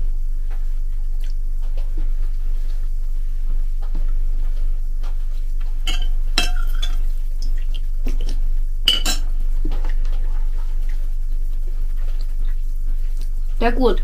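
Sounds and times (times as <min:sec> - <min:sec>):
steady low hum: 0:00.0 - 0:14.0
spoon clinking on ceramic bowl: 0:05.9 - 0:07.1, 0:08.9 - 0:09.3.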